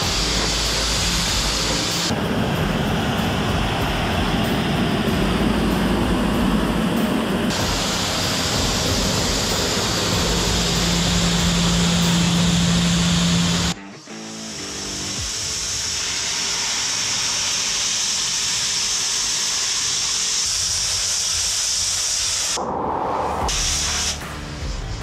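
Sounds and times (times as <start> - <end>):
pressure washer spray hiss: 0.0 - 5.1, 7.5 - 22.6, 23.5 - 24.2
low hum: 0.0 - 13.8, 22.6 - 25.0.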